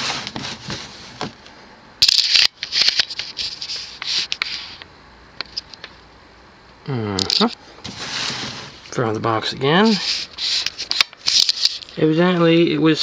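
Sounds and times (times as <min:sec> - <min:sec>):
cardboard box scraping and rustling: 0:00.0 - 0:01.4, 0:07.8 - 0:08.8.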